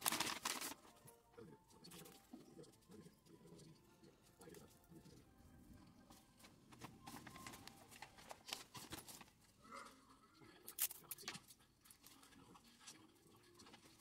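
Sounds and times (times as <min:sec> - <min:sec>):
paper bag rustling and crinkling: 0:00.0 - 0:01.0, 0:06.7 - 0:09.5.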